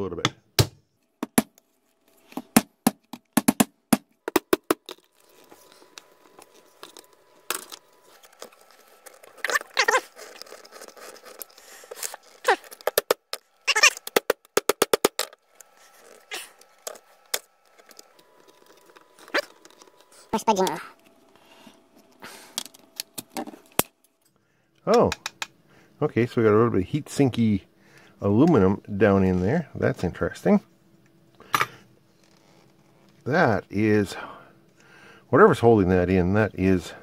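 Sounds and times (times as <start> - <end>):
blade scraping plastic: 4.8 - 14.4.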